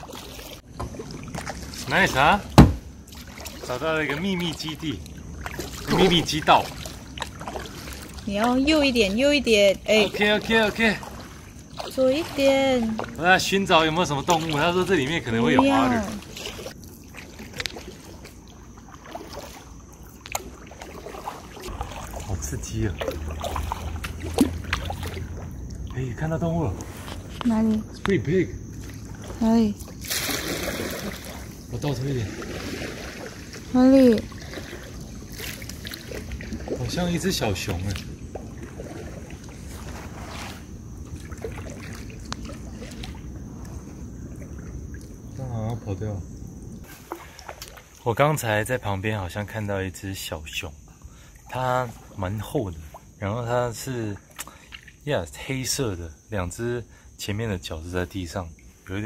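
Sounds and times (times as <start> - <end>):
paddles swishing through water: 0.0 - 48.8
sharp knocks: 2.5 - 2.9.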